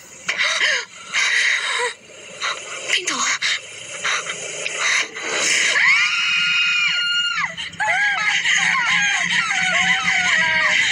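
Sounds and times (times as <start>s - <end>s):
woman crying: 7.4s - 10.9s.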